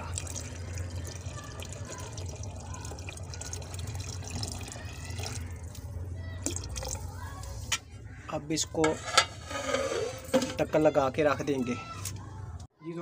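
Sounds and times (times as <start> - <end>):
water pouring into liquid: 0.0 - 7.6.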